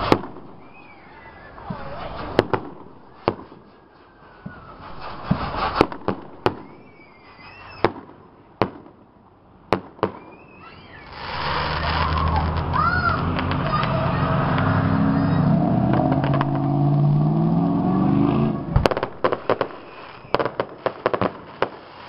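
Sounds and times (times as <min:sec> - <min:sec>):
fireworks bangs: 0:00.0 - 0:22.0
fireworks crackling: 0:00.0 - 0:22.0
low engine rumble: 0:11.0 - 0:20.4.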